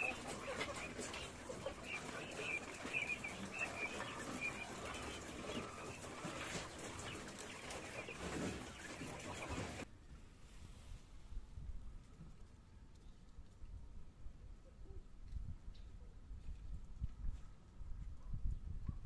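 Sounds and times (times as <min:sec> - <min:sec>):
birds rustling in wire cages: 0:00.0 - 0:09.8
quail chirping: 0:00.0 - 0:09.8.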